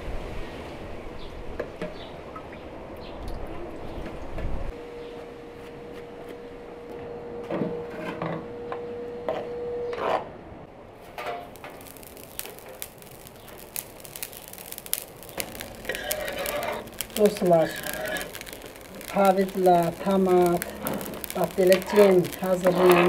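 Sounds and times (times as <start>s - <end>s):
salt pouring onto iron plate: 11.5s - 23.0s.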